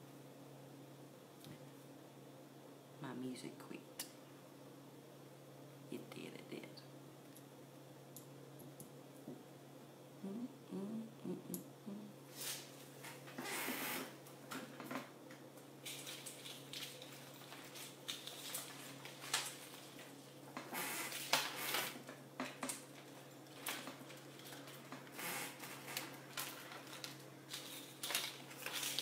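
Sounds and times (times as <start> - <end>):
steady low hum: 0.0 - 29.0
jewelry clicking and rustling: 15.8 - 18.6.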